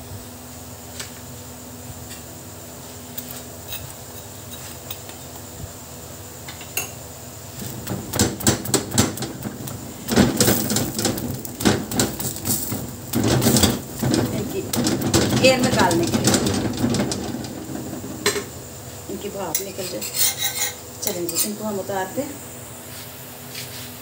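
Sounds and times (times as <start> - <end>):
metal spatula knocking on griddle: 7.6 - 18.6.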